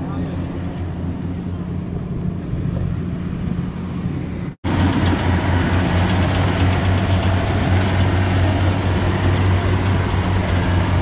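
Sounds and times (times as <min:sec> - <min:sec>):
combine harvester engine: 0:00.0 - 0:11.0
rushing machine noise: 0:04.6 - 0:11.0.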